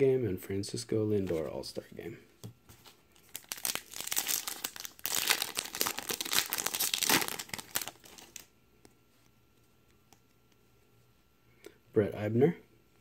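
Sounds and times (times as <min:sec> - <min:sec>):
card pack wrapper tearing: 0:03.2 - 0:08.5.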